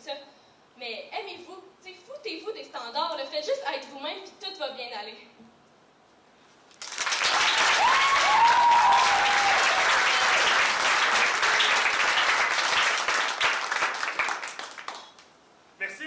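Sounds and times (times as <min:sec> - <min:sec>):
audience applauding: 0:06.8 - 0:15.3
voices cheering: 0:07.3 - 0:13.0.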